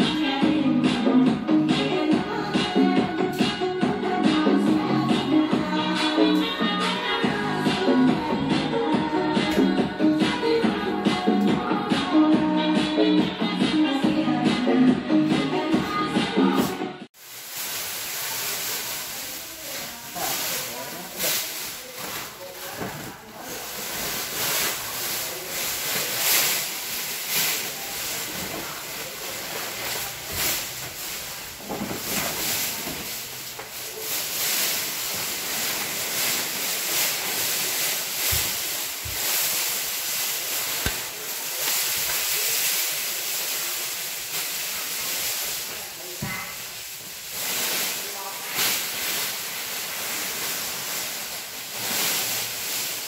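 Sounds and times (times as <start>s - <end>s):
pulsing steady hiss: 32.1s - 53.0s.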